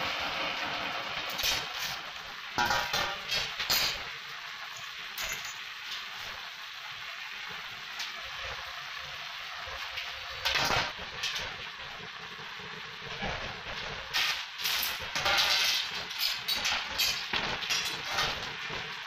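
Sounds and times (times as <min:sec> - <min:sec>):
metal tube frame clinking on concrete: 0:04.7 - 0:05.6.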